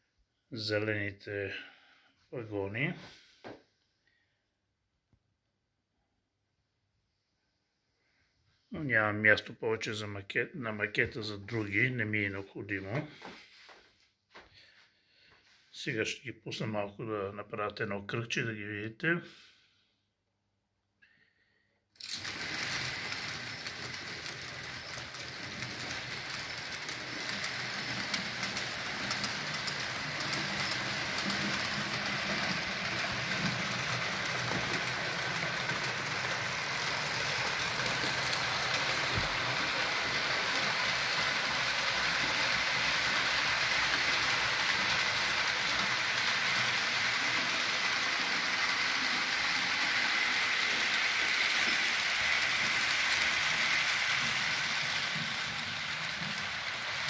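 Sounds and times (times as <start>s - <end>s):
model train wheels rattling: 22.0s - 57.0s.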